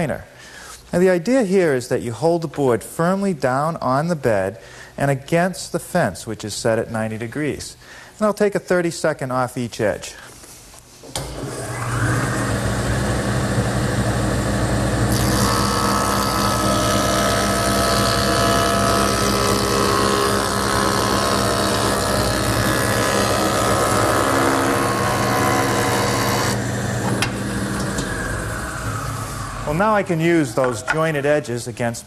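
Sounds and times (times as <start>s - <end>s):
jointer motor whine: 11.1s - 31.2s
cutterhead shaving wood: 15.1s - 28.8s.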